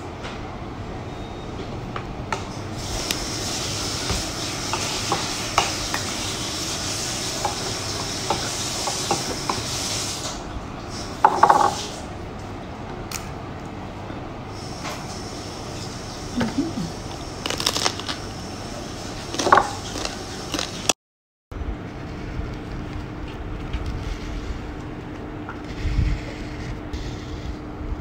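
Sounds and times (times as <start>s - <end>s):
rice crackers crackling: 17.2s - 18.4s, 19.2s - 20.9s
crunchy crackle: 17.4s - 18.3s.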